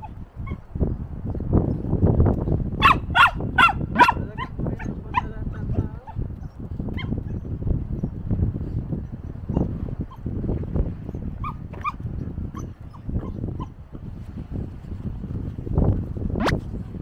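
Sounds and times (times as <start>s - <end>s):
puppy barking and yipping: 0.0s - 0.6s, 2.8s - 5.3s, 6.9s - 7.4s, 11.4s - 13.8s.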